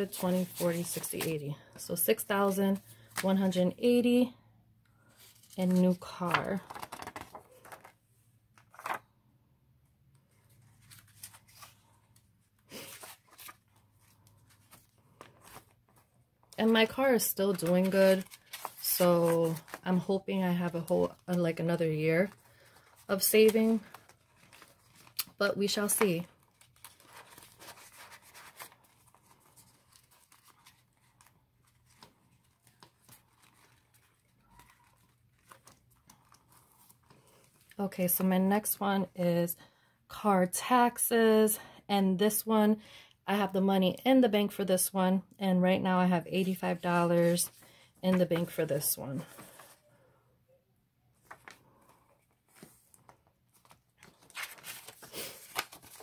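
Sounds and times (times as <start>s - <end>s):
faint rustling of paper: 0.0s - 4.2s, 5.0s - 9.1s, 10.2s - 38.7s, 46.4s - 50.1s, 51.1s - 56.0s
plastic pouch handled: 12.7s - 16.1s, 16.8s - 19.9s, 22.2s - 37.8s.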